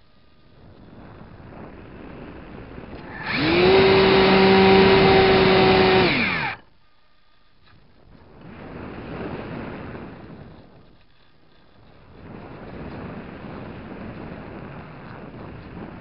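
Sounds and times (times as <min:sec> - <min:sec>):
model plane motor whining: 0:01.9 - 0:06.7.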